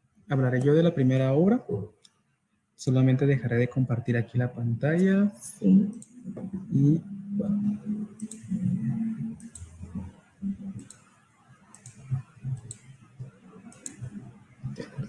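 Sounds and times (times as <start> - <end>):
computer mouse clicks: 5.9 - 6.5, 8.0 - 8.6, 9.4 - 14.4.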